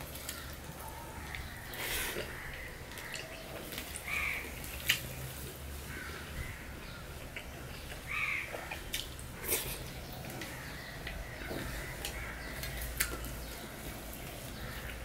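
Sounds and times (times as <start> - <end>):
soft chewing: 0.0 - 6.1, 6.9 - 15.0
bird calling: 0.2 - 4.6, 7.8 - 15.0.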